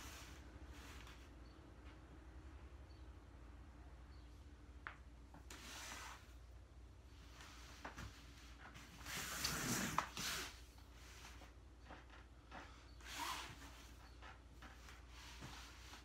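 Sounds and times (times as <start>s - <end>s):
bare feet sliding on foam mats: 0.0s - 1.4s, 7.2s - 16.0s
faint low hum: 0.0s - 16.0s.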